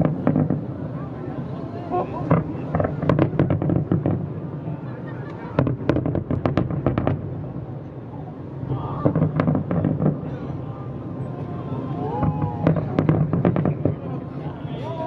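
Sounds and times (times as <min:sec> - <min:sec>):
fireworks bursting: 0:00.0 - 0:01.0, 0:02.1 - 0:07.8, 0:08.6 - 0:10.6, 0:12.1 - 0:14.7.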